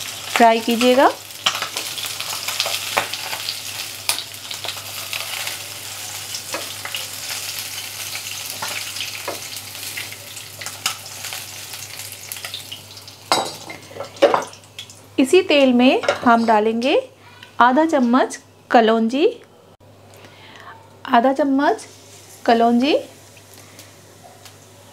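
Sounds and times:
fish sizzling in hot oil: 0.0s - 15.1s.

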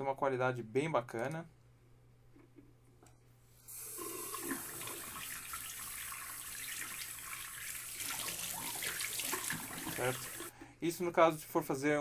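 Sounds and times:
water running from a tap: 3.7s - 10.5s.

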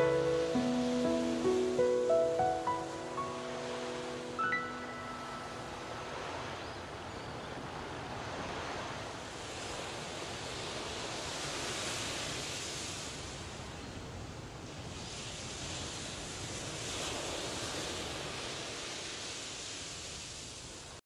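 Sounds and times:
high musical notes ringing: 0.0s - 6.1s
ocean surf washing in: 0.0s - 21.0s.

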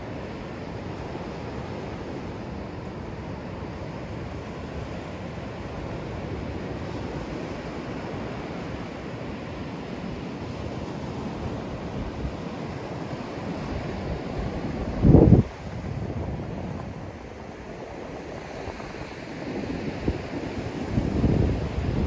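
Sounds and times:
sea surf: 0.0s - 22.0s
wind buffeting microphone: 13.4s - 22.0s.

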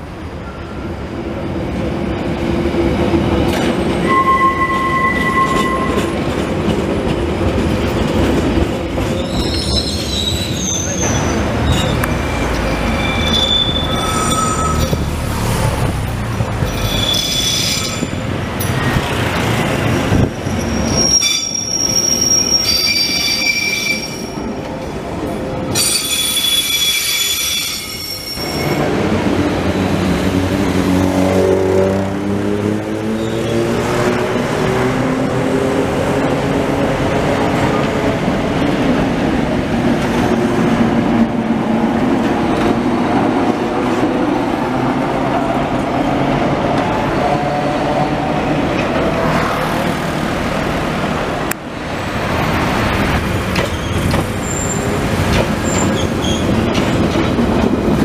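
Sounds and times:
light-rail railcars rumbling: 0.0s - 58.0s
steel wheels squealing on curves: 4.0s - 6.1s, 9.1s - 15.2s, 16.6s - 18.2s, 20.4s - 24.4s, 25.8s - 28.8s, 53.6s - 57.0s.

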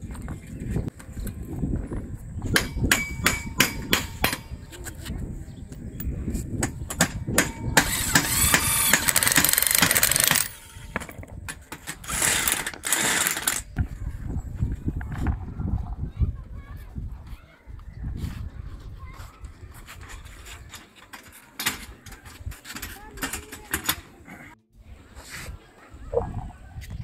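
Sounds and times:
electric drill drilling into metal: 7.8s - 11.0s, 12.0s - 13.7s.

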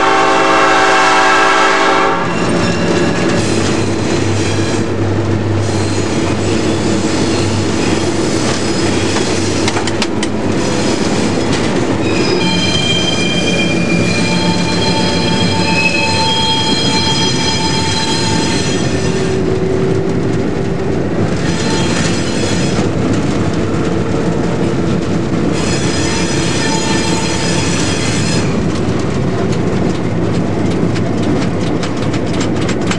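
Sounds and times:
locomotive rumble: 0.0s - 32.9s
wheel squeal: 2.2s - 5.0s, 5.6s - 9.8s, 10.5s - 20.0s, 21.3s - 23.0s, 25.5s - 28.6s.

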